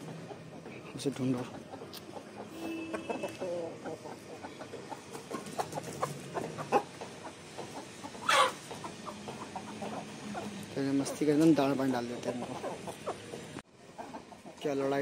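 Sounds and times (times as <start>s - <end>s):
chickens clucking: 0.0s - 15.0s
sharp chicken call: 2.4s - 4.0s, 8.2s - 8.6s.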